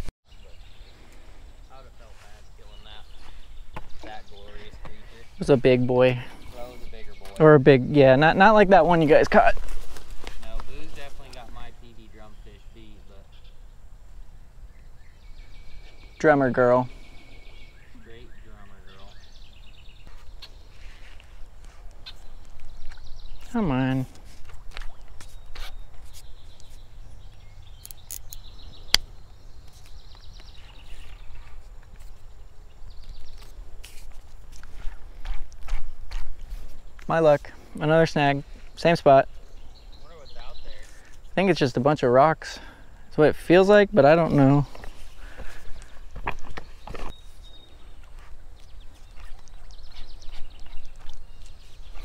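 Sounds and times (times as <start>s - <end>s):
rapid high chirping ticks: 25.0s - 30.6s.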